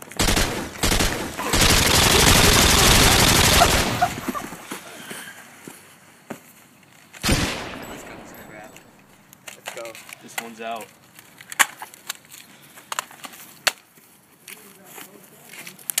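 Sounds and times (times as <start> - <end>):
machine-gun fire: 0.0 - 4.7, 7.2 - 9.1.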